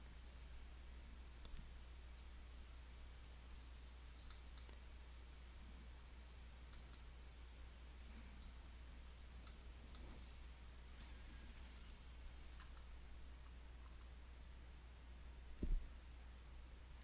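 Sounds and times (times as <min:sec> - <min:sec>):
low steady hum: 0:00.0 - 0:17.0
computer mouse clicks: 0:04.2 - 0:04.8, 0:06.7 - 0:07.1, 0:09.4 - 0:10.1, 0:12.6 - 0:14.1.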